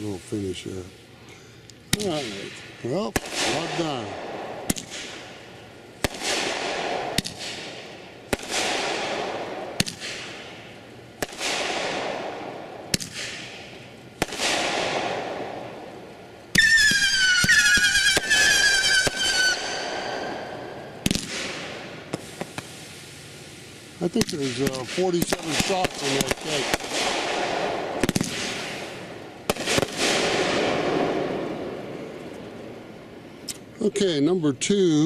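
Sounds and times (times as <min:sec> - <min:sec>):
firework bursts: 0:00.0 - 0:33.8
firework shots: 0:01.8 - 0:33.7
descending firework whistles: 0:16.5 - 0:23.1.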